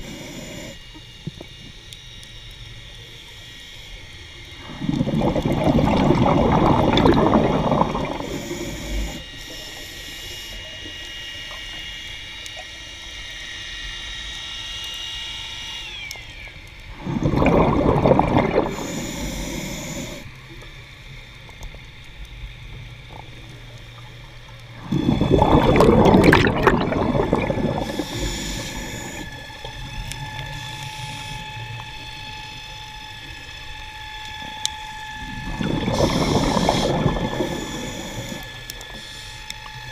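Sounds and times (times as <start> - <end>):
scuba regulator exhaust bubbles: 0.0 - 1.8, 4.6 - 9.8, 16.9 - 20.3, 22.9 - 32.5, 34.4 - 39.9
faint high whines: 0.0 - 21.4, 22.1 - 39.9.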